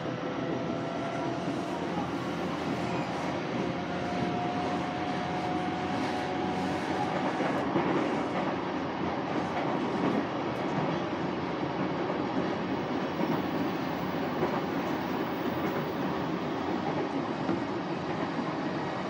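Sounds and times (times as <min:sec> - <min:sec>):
train wheels rumbling on rail: 0:00.0 - 0:19.0.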